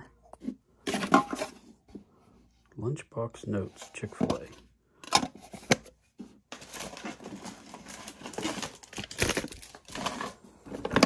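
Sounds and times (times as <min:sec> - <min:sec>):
hands rummaging through cables and paper: 0:03.7 - 0:11.0.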